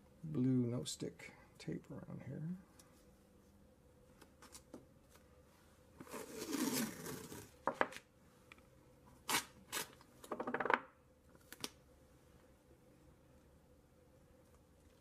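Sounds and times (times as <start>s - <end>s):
tape peeling off roll: 6.0s - 7.5s.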